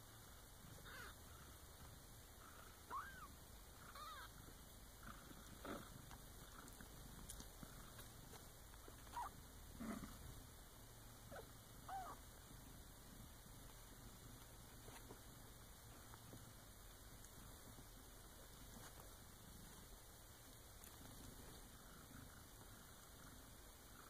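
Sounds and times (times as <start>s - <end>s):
kittens mewing: 0.8s - 1.4s, 2.9s - 4.4s, 9.0s - 9.4s, 11.3s - 12.2s.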